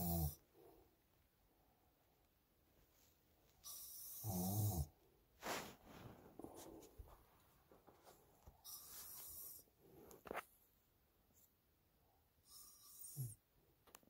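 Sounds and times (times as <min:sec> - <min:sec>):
man snoring: 0:00.0 - 0:00.4, 0:03.8 - 0:04.9.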